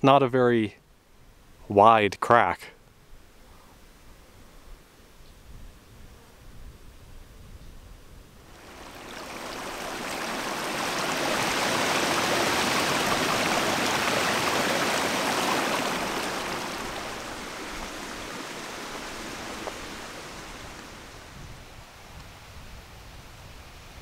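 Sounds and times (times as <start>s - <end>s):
creek water rushing: 8.5s - 22.0s.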